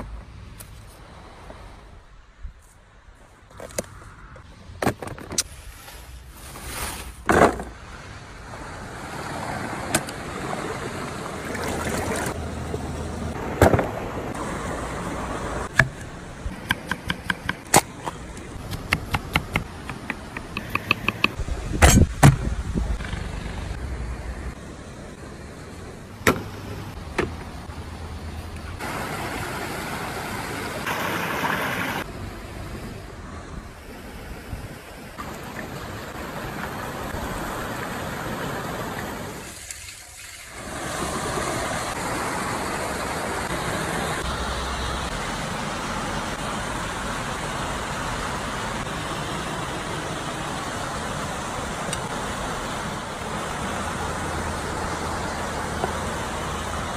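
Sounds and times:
leaves rustling: 5.4 - 7.3
low wind rumble: 21.0 - 39.5.

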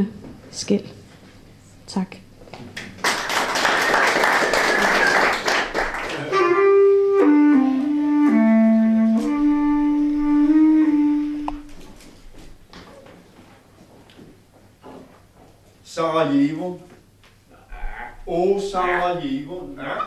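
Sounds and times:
applause: 2.8 - 6.3
bass clarinet phrase: 6.1 - 11.8.

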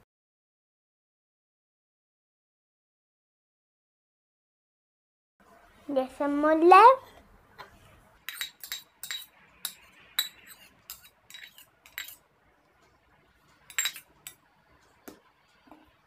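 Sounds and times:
metal spoon clinking against cup: 8.3 - 12.2, 13.7 - 14.4.

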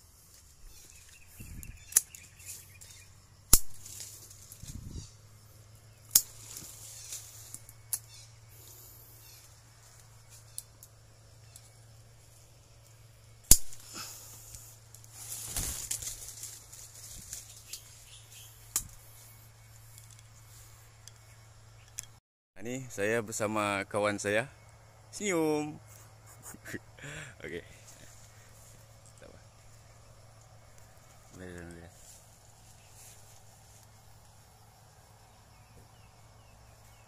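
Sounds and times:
leafy branches rustling: 0.0 - 21.8, 27.5 - 37.0
pruning shears snipping: 0.9 - 4.8, 6.0 - 8.2, 13.4 - 19.1.

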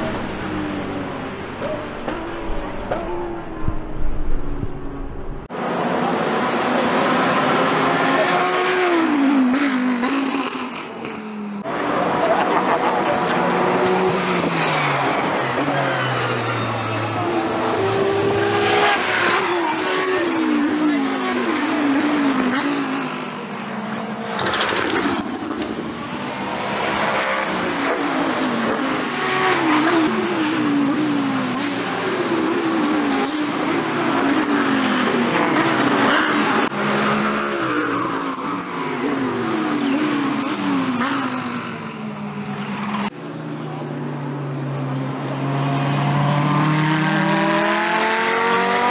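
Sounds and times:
race car engines accelerating past: 44.2 - 48.9.

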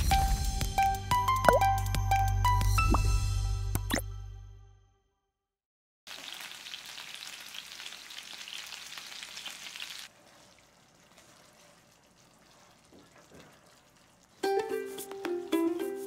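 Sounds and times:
chicken sizzling in oil: 6.1 - 12.9
stirring gravy with spatula: 10.1 - 15.2.

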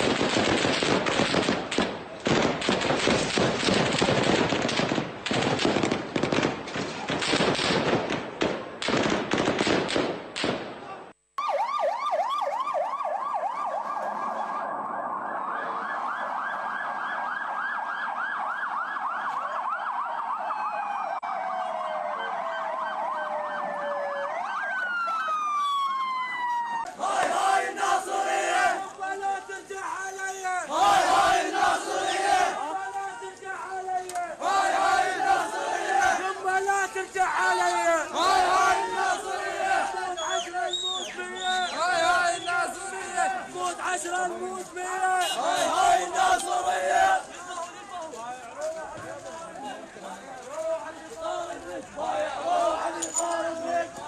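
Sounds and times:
sharp cracks and bangs: 0.0 - 10.9
siren tone sliding down: 11.4 - 26.9
sirens yelping: 11.4 - 47.6
crowd commotion: 24.8 - 54.0.

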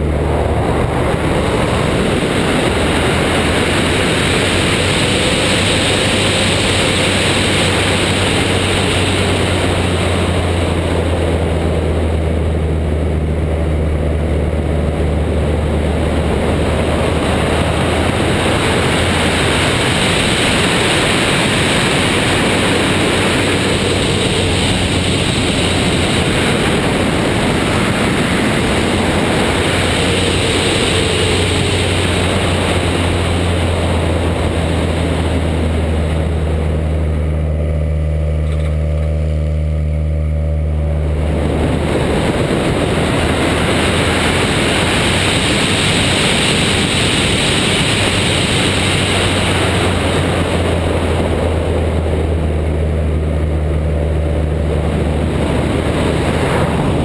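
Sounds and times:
wind rush: 0.0 - 38.4, 39.5 - 57.0
airplane engine and propeller: 0.0 - 57.0.

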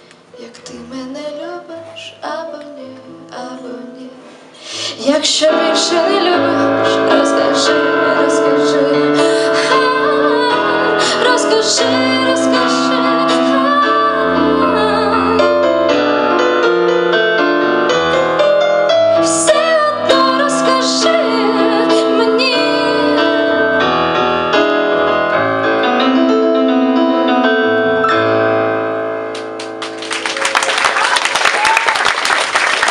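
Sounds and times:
keyboard playing piano sound: 5.0 - 30.4.

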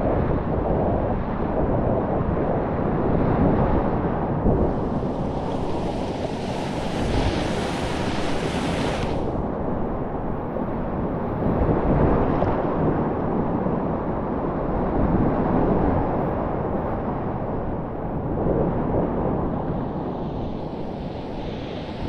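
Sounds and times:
rushing whitewater: 4.6 - 9.3.

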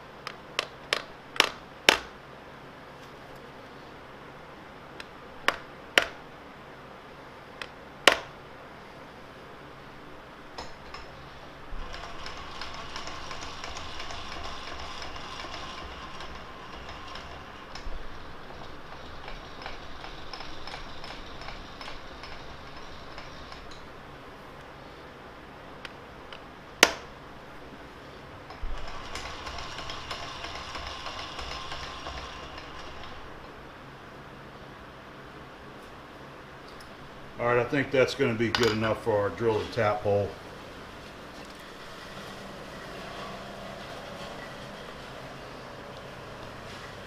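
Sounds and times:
milling machine table running: 10.6 - 24.5, 28.0 - 33.9, 40.8 - 47.0.

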